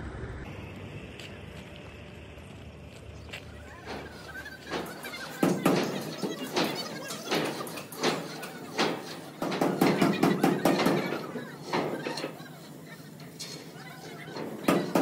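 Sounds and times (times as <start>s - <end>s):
steel beam scraping on rails: 3.8s - 15.0s.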